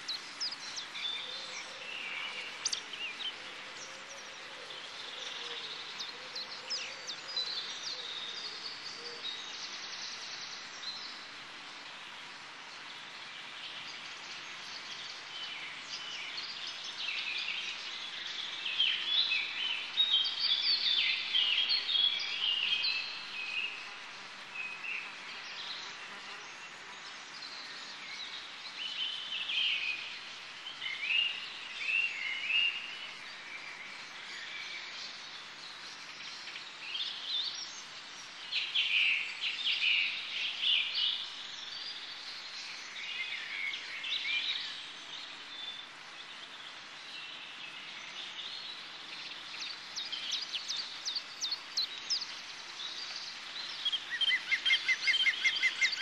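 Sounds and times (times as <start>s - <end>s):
birds chirping: 0.0s - 3.9s
faint hiss: 0.0s - 56.0s.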